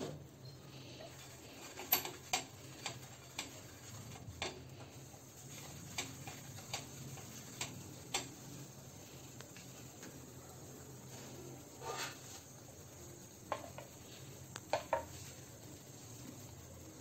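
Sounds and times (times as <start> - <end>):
vegetable tapping on frying pan: 13.5 - 14.0, 14.6 - 15.2.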